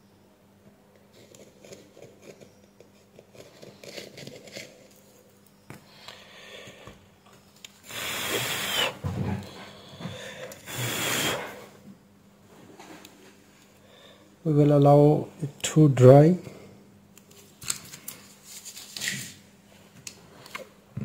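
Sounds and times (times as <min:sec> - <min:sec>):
faint handling sounds: 0:17.2 - 0:20.8.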